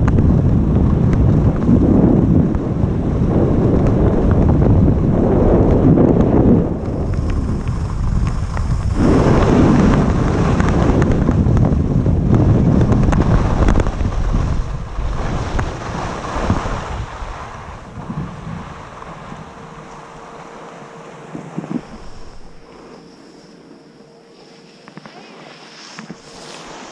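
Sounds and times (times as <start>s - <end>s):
wind rushing over microphone: 0.0s - 23.6s
skis hissing and scraping on snow: 7.0s - 10.9s, 13.2s - 19.3s, 21.2s - 26.9s.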